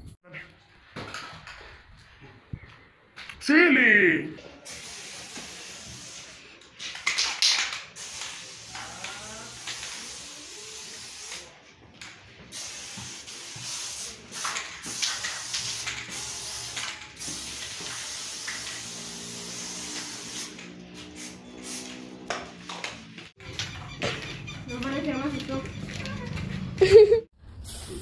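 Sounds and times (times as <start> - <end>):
spray paint can hissing: 4.7 - 11.6, 12.5 - 23.0.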